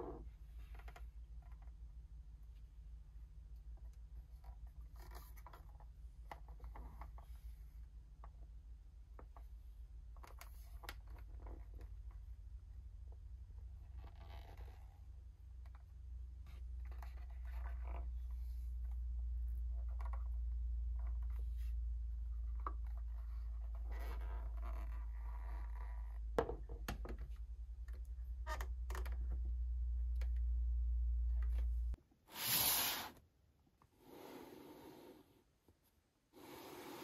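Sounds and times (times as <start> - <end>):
steady low hum: 27.3 - 32.0.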